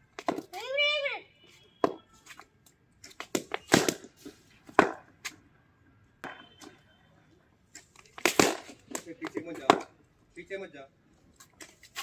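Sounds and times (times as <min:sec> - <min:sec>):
ball bouncing on concrete: 0:00.1 - 0:00.7, 0:01.8 - 0:02.5, 0:03.1 - 0:05.4, 0:06.2 - 0:06.8, 0:08.0 - 0:10.0
cricket ball striking bat: 0:03.2 - 0:04.1, 0:04.7 - 0:05.1, 0:06.2 - 0:06.5, 0:08.2 - 0:10.0.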